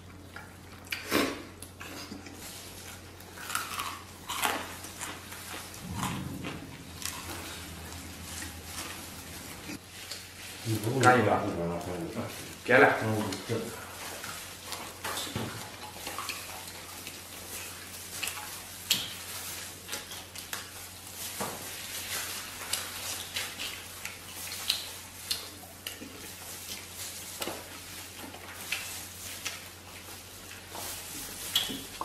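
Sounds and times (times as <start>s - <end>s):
people chewing and lip-smacking: 0.0s - 6.4s, 13.1s - 21.0s, 22.0s - 32.0s
steady low hum: 3.8s - 12.7s.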